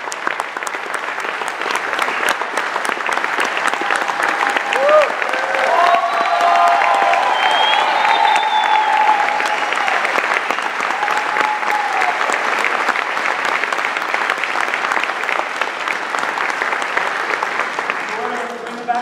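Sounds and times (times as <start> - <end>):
large audience applauding: 0.0 - 19.0.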